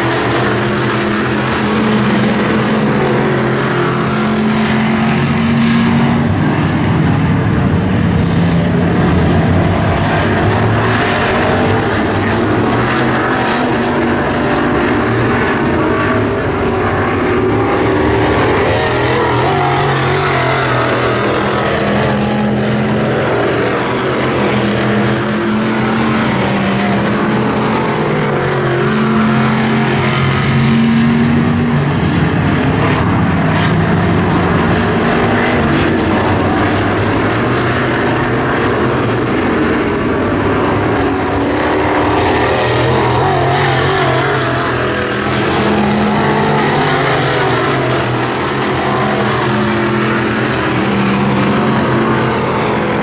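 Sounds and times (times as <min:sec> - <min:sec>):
race car engines revving: 0:00.0 - 0:53.0.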